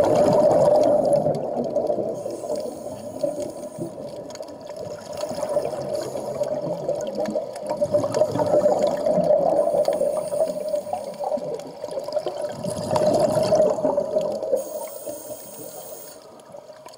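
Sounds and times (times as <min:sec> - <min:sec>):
underwater air bubbling: 0:00.0 - 0:16.9.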